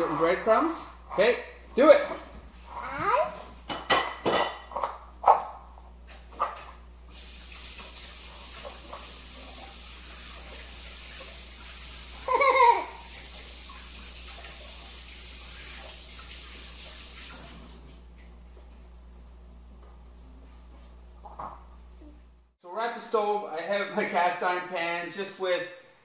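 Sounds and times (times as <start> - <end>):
kitchen tap running: 7.1 - 18.4
hands washing under water: 7.1 - 18.6
toddler laughing: 12.2 - 13.1.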